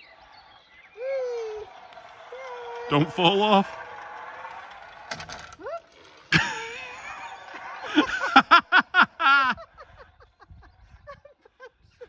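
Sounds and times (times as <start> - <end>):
person laughing: 6.3 - 12.0.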